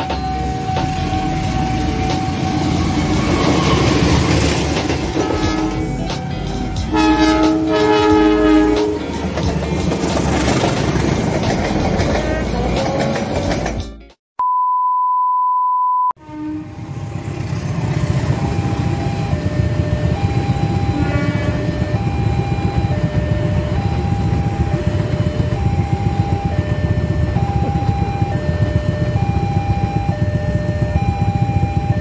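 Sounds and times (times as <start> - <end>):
level-crossing two-note alarm: 0.0 - 9.2, 18.1 - 32.0
train rumbling past: 0.0 - 13.9, 16.2 - 31.0
train horn toot: 3.2 - 6.0, 6.9 - 9.4, 16.2 - 17.0, 20.9 - 22.0
steady test beep: 14.4 - 16.2.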